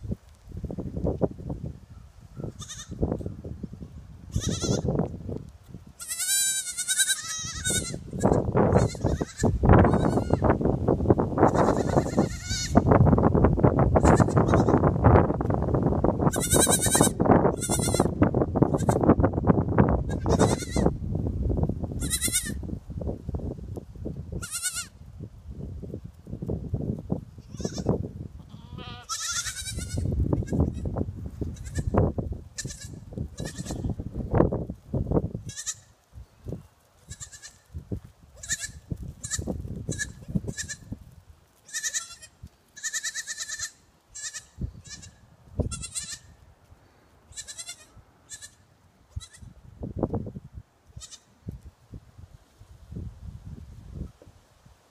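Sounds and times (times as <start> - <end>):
goat kids bleating: 2.4 - 3.0, 4.3 - 4.9, 6.0 - 10.5, 11.4 - 12.9, 14.0 - 14.8, 16.3 - 19.1, 20.1 - 20.9, 22.0 - 22.6, 24.4 - 25.0, 27.4 - 30.9, 31.5 - 32.0, 32.6 - 33.9, 35.4 - 35.9, 37.0 - 37.7, 38.4 - 40.9, 41.6 - 46.4, 47.3 - 49.5, 50.9 - 51.3.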